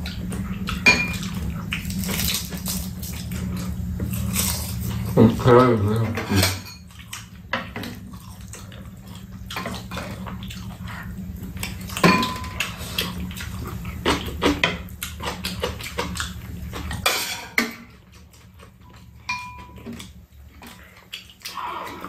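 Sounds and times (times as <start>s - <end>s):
steady low hum: 0.0s - 22.0s
utensils clinking against bowls: 0.7s - 1.5s, 4.1s - 8.0s, 12.0s - 13.0s, 16.8s - 20.2s.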